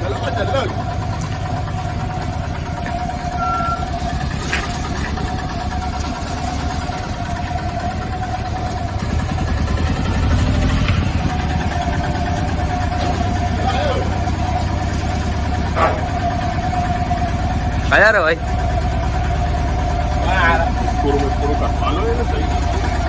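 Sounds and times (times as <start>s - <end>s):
small diesel truck engine: 0.0s - 23.0s.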